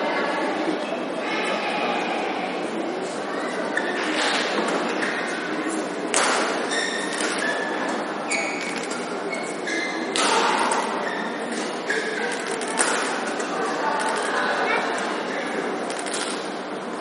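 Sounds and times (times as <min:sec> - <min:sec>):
crowd chatter: 0:00.0 - 0:17.0
rackets hitting shuttlecock: 0:06.1 - 0:07.4
shoes squeaking on court: 0:06.6 - 0:10.1, 0:10.9 - 0:13.3.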